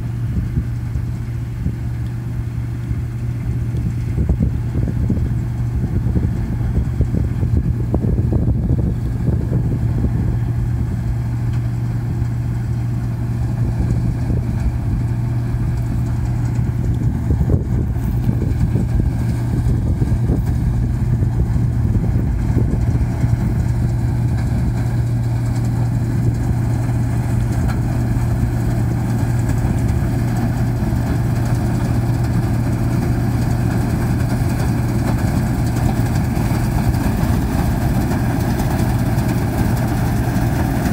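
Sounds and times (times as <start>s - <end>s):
combine harvester drone: 0.0s - 40.9s.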